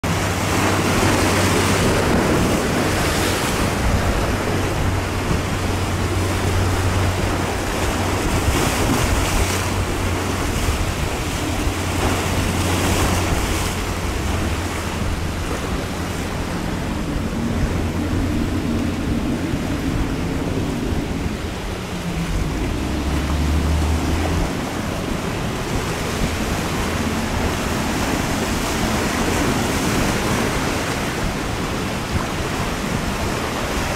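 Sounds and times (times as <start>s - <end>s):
diesel engines droning: 0.0s - 32.1s
breaking surf: 0.0s - 33.9s
wind buffeting the microphone: 0.0s - 33.9s.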